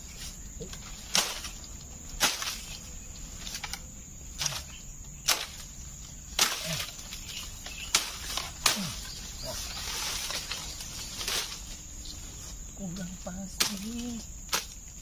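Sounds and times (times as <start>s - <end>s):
machete chopping bamboo: 0.6s - 2.8s, 3.4s - 5.7s, 6.3s - 9.2s, 13.6s - 14.8s.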